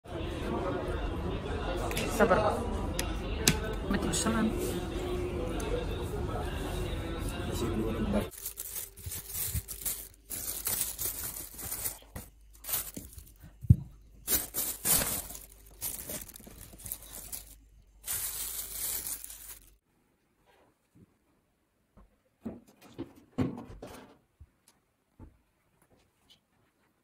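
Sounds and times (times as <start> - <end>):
plastic bags rustling: 8.3 - 19.8.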